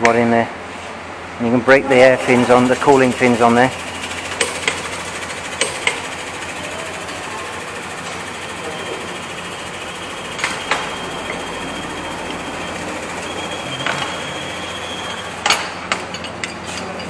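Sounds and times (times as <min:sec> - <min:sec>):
workshop background hum: 0:00.0 - 0:17.0
metal tools clinking on tray: 0:15.4 - 0:17.0.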